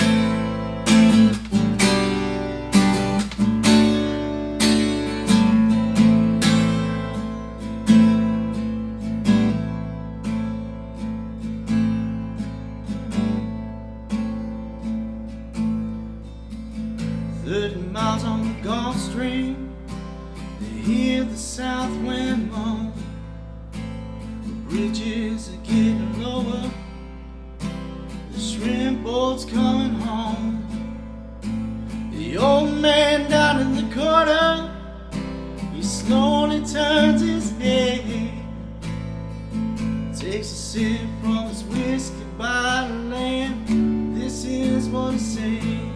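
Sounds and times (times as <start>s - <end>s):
acoustic guitar strumming: 0.0s - 45.9s
man singing: 17.4s - 23.1s, 24.6s - 26.9s, 28.3s - 30.8s, 32.1s - 38.7s, 40.1s - 45.9s.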